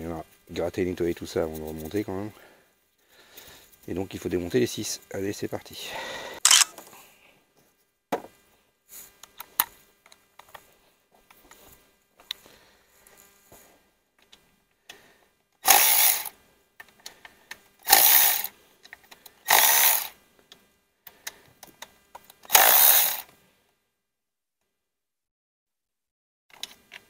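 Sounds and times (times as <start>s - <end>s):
electric ratchet whirring: 6.5s - 6.7s, 15.7s - 16.3s, 17.8s - 18.5s, 19.5s - 20.2s, 22.5s - 23.3s
tool handling clicks: 6.5s - 6.7s.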